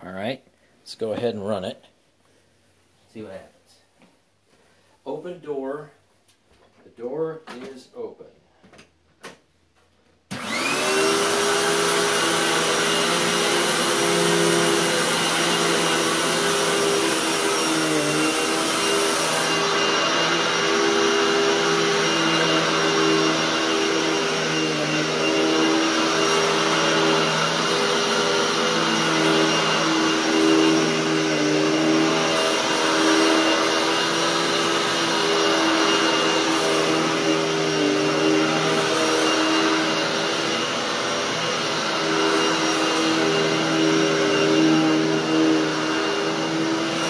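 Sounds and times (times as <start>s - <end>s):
vacuum cleaner running on carpet: 10.3s - 47.0s.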